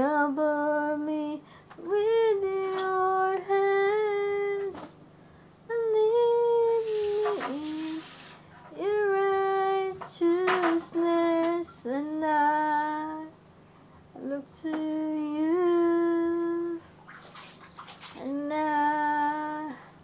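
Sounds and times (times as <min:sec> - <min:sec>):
person breathing: 0:05.1 - 0:05.6.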